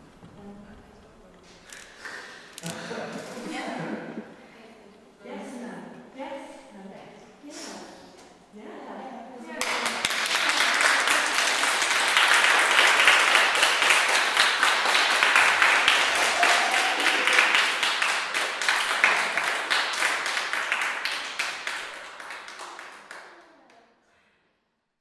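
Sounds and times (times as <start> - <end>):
audience applauding: 9.6 - 23.7.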